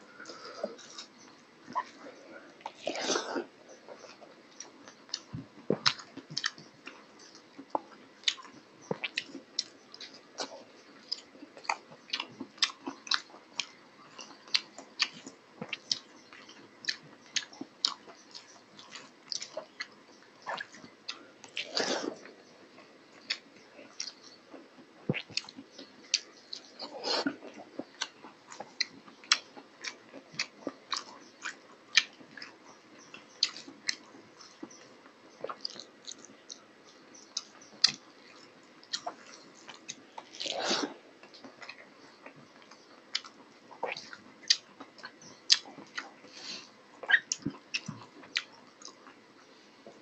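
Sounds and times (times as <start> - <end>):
person chewing food: 0.1 - 50.0.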